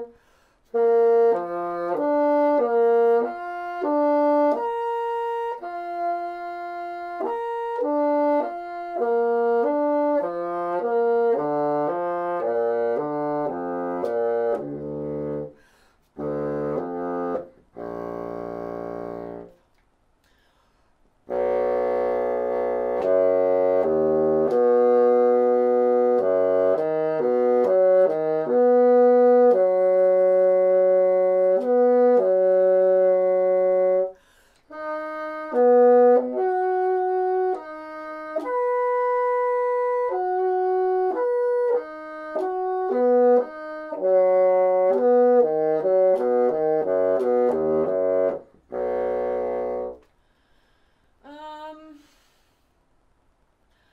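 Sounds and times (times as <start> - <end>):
bassoon playing arpeggios: 0.0 - 19.6, 21.3 - 50.1
player taking a breath: 0.2 - 0.7, 15.6 - 16.1, 20.2 - 21.0, 34.2 - 34.7, 50.1 - 51.2, 52.0 - 52.8, 53.7 - 53.9.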